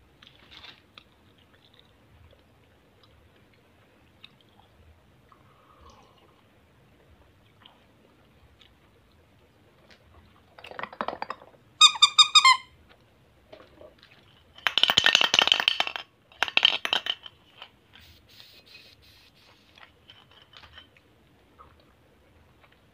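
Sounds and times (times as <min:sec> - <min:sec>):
squeaky toy chirps: 0:11.8 - 0:12.7.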